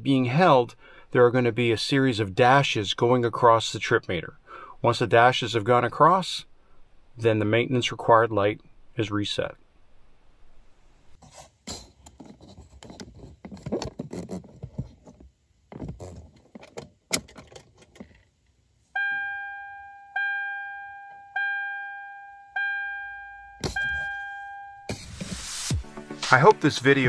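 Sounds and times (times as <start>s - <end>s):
dashboard chime pinging: 19.0s - 24.9s.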